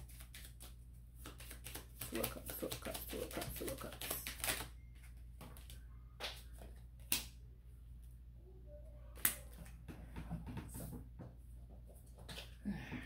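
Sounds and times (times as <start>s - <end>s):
cards rustling: 0.0s - 4.8s.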